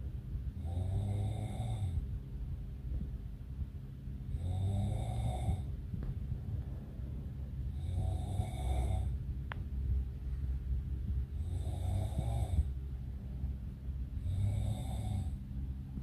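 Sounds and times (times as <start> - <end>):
steady low hum: 0.0 - 16.0
person snoring: 0.6 - 2.0, 4.3 - 5.7, 7.7 - 9.2, 11.3 - 12.7, 14.2 - 15.4.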